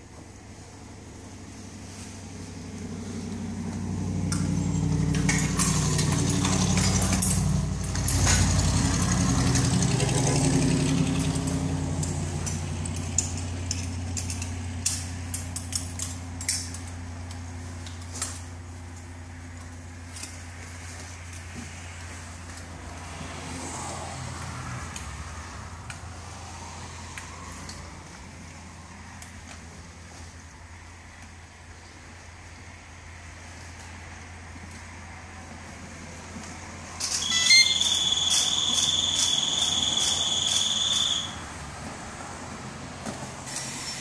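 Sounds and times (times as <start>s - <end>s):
low engine-like hum: 0.0s - 44.0s
metal buckles clicking: 4.3s - 8.6s, 11.2s - 17.0s.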